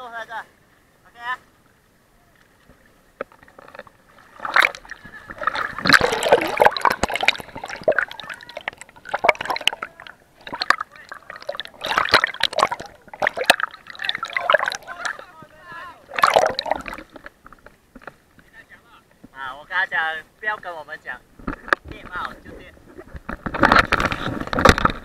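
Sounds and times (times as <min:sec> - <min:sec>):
seawater splashing and sloshing: 0:02.5 - 0:18.2.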